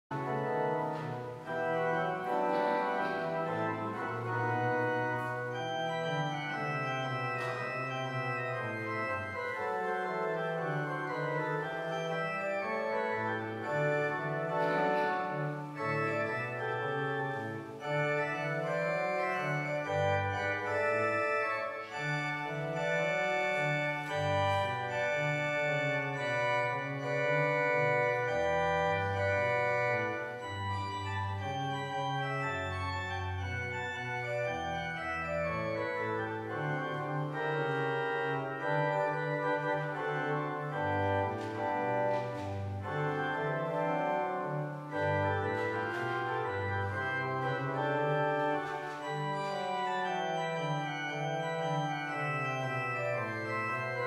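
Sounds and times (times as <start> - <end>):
church organ playing chords: 0.1 - 54.0.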